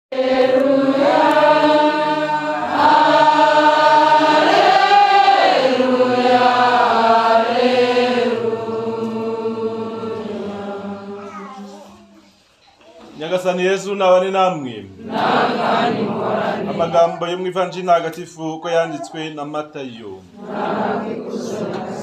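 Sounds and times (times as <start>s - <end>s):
voices singing a slow chant: 0.1s - 12.0s, 14.9s - 17.5s, 20.3s - 22.0s.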